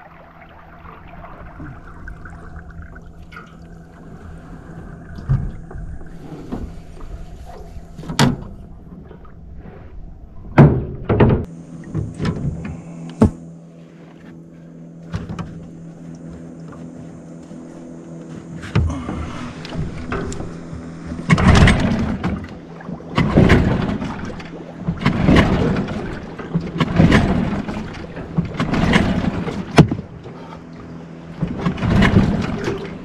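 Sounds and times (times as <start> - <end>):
outboard motor idling: 0.0 - 10.6, 11.4 - 33.0
sharp thunks: 10.5 - 13.4, 18.6 - 22.5, 23.1 - 30.3.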